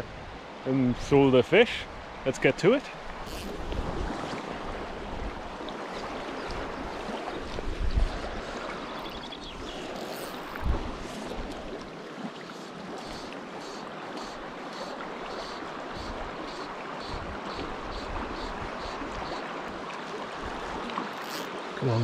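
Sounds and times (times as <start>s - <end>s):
wind gusts on microphone: 3.1s - 11.8s, 17.1s - 19.4s.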